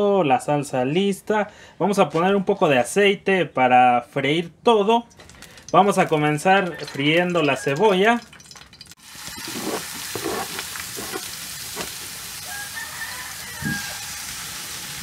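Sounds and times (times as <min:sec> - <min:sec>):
sharp crackles: 0:05.1 - 0:12.1
metal spoon stirring: 0:05.8 - 0:08.6, 0:09.2 - 0:11.9
onion sizzling in oil: 0:07.6 - 0:15.0.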